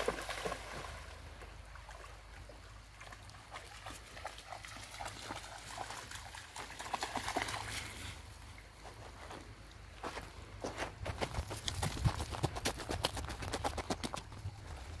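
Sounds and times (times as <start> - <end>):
dog splashing through water: 0.0 - 1.2, 3.0 - 8.1.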